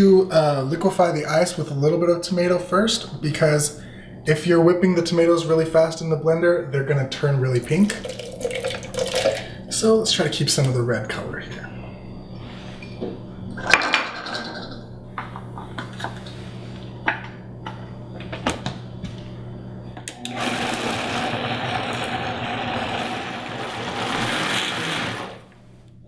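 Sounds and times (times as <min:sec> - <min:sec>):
countertop blender running: 0:07.8 - 0:09.5, 0:20.1 - 0:25.6.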